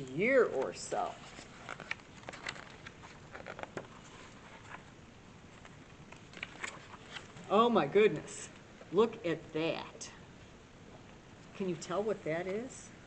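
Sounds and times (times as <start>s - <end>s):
book pages rustling: 0.4s - 8.9s, 11.4s - 12.7s.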